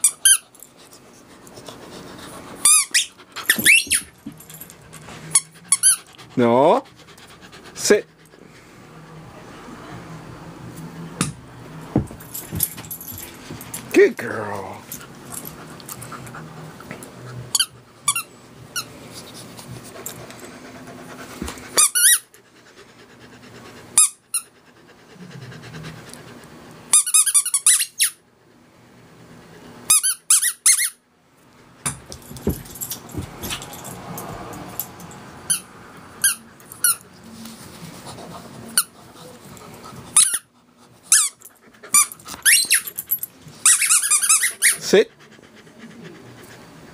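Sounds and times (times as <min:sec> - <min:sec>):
squeaky rubber ball squeaking: 0:02.6 - 0:04.1, 0:43.6 - 0:44.8.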